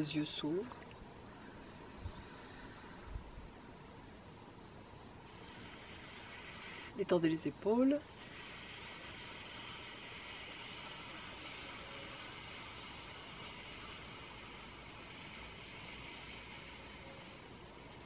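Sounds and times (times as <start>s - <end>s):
hiss breathed through teeth: 5.2s - 7.0s, 8.0s - 18.0s.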